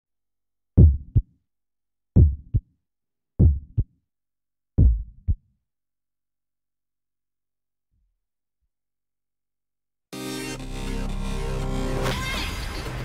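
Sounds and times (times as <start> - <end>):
heartbeat double thumps: 0.8 - 1.3, 2.2 - 2.6, 3.4 - 3.9, 4.8 - 5.4.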